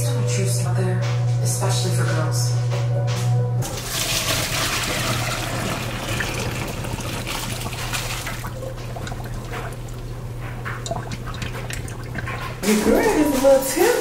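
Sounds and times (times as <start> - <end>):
water pouring through a colander: 3.6 - 13.3
water trickling and dripping: 3.6 - 13.5.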